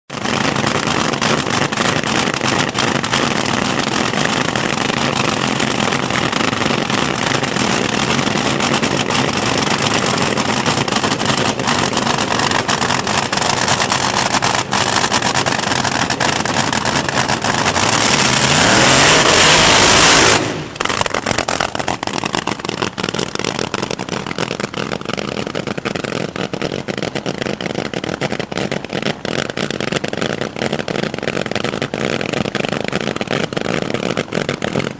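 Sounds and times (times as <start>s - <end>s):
dragster engines roaring: 0.2s - 34.9s.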